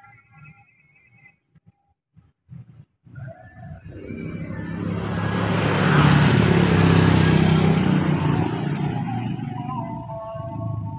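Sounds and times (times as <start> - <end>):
motorcycles riding past: 3.7 - 10.9.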